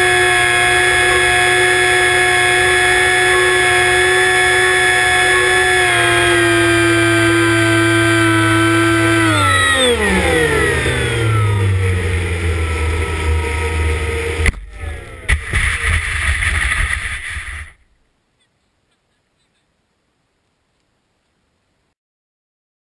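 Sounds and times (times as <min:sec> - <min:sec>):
electric motor and propeller whining: 0:00.0 - 0:17.8.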